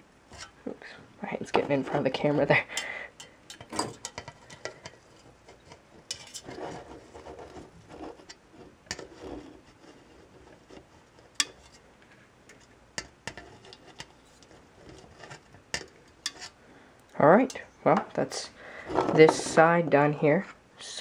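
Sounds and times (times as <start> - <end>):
soft rubbing of can: 4.3 - 12.7.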